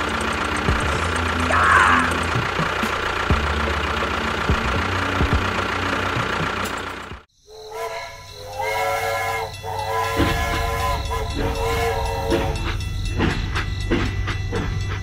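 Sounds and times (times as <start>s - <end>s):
tractor engine chugging: 0.0s - 15.0s
whistle-like notes: 7.5s - 15.0s.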